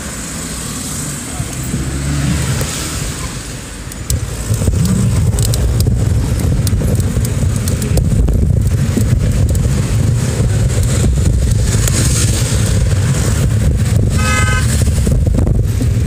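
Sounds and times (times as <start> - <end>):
passing car traffic: 0.0 - 16.0
bicycle clicks and rattles: 3.9 - 10.1
wind rumble on microphone: 4.1 - 16.0.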